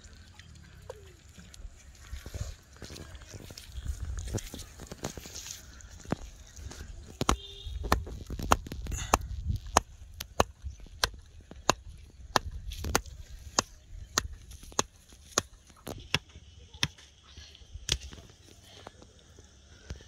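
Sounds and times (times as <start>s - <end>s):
wooden stick knocking on stake: 7.1s - 17.0s.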